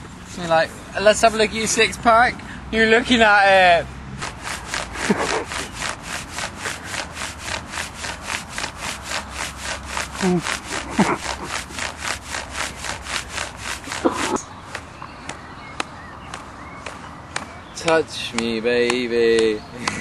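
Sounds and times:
hands rubbing padded costume: 4.2 - 14.8.

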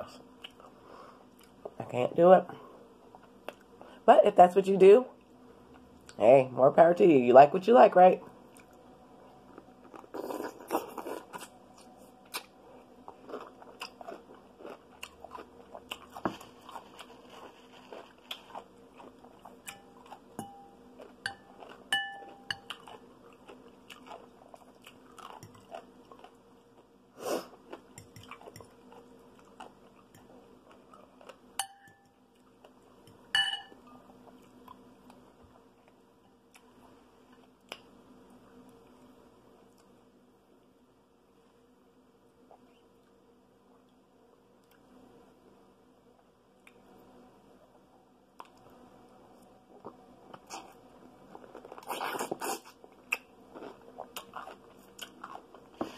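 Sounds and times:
chewing and mouth sounds: 9.6 - 20.3, 21.0 - 26.9, 27.5 - 31.4, 49.8 - 55.8
clinks against glass bowls: 21.3 - 22.7, 31.6 - 32.1, 33.3 - 33.8.

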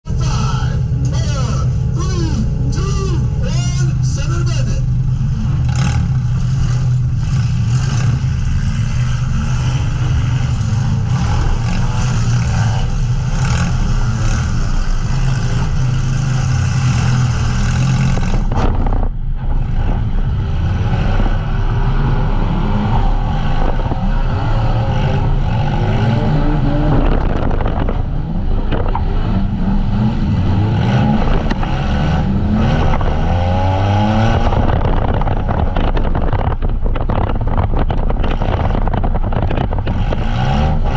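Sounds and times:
van engines revving: 0.0 - 40.9.

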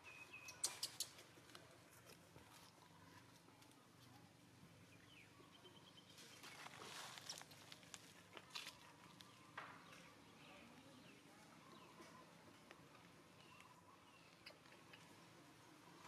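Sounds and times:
rustling in dry leaves: 6.1 - 9.2.

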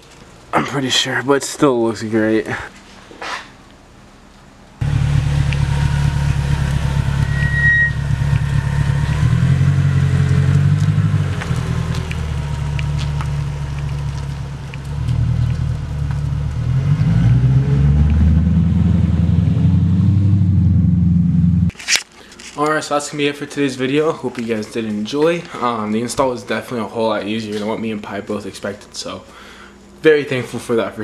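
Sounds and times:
car engine driving away: 4.8 - 21.7.

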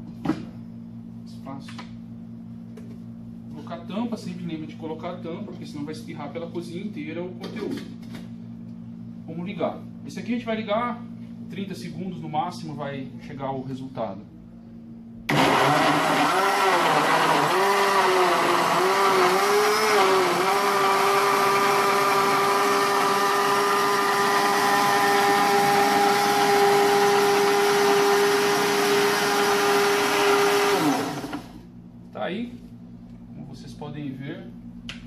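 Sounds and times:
blender winding down: 15.3 - 31.6
blender motor running: 15.3 - 31.7.

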